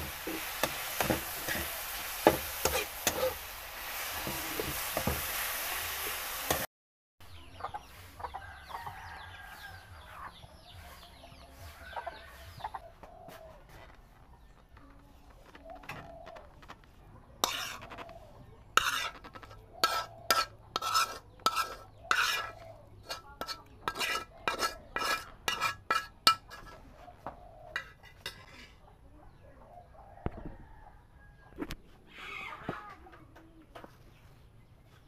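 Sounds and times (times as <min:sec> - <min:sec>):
metal spatula scraping a pan: 0:00.0 - 0:06.7, 0:17.4 - 0:26.9, 0:27.8 - 0:28.8.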